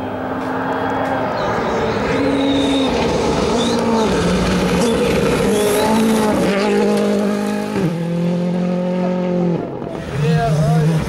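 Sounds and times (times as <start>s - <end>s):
rally car engine running hard: 2.7s - 11.0s.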